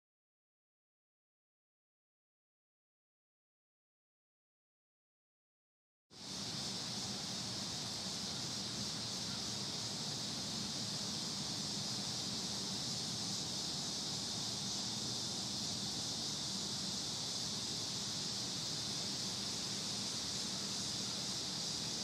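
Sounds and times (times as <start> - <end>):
insects droning: 6.1 - 22.0.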